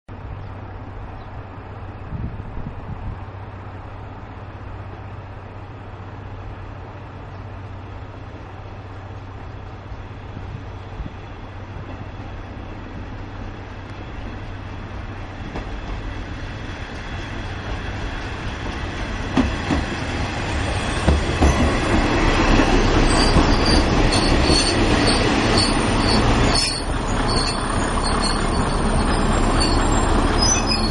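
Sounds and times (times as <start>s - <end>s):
diesel engine and wheels rumbling: 0.1s - 30.9s
high-pitched brake squeal: 23.0s - 30.9s.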